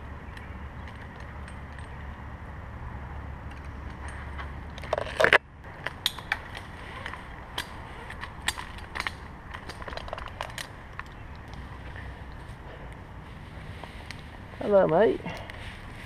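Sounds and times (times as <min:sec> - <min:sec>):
metal climbing hardware clicking: 0:00.3 - 0:02.1, 0:03.4 - 0:11.7.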